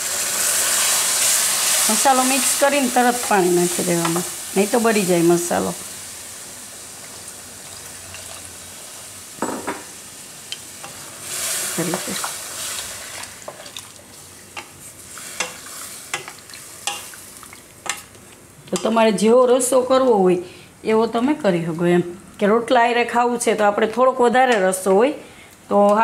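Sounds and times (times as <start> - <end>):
okra sizzling in a pan: 0.0 - 19.0.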